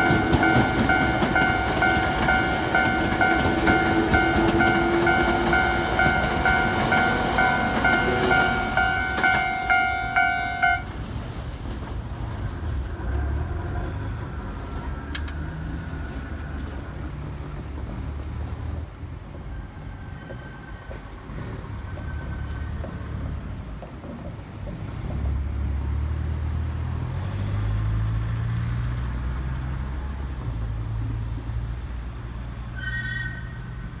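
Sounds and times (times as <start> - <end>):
level crossing bell ringing: 0.0 - 10.8
train wheels and motors rumbling: 0.0 - 34.0
short tone: 32.8 - 33.8.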